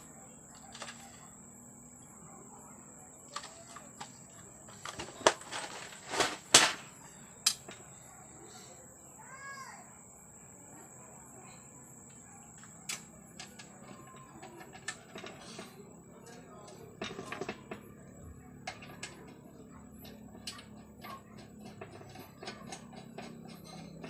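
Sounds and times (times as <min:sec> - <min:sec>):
metal terminals rattling in tray: 0:00.5 - 0:01.5, 0:03.2 - 0:07.8.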